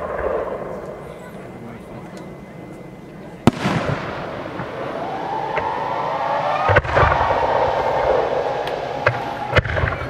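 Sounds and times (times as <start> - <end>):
sharp firework bang: 3.4 - 5.8, 6.5 - 10.0
fireworks going off: 3.4 - 10.0.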